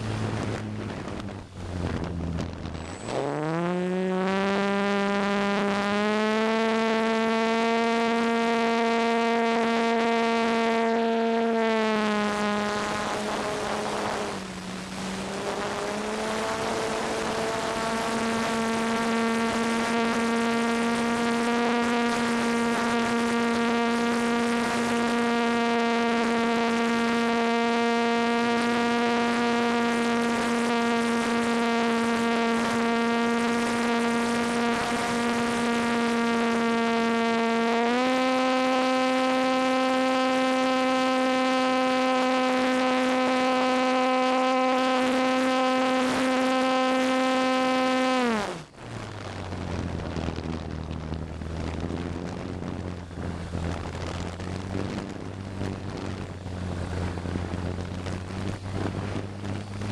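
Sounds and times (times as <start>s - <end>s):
electric motor and propeller whine: 0.0s - 59.9s.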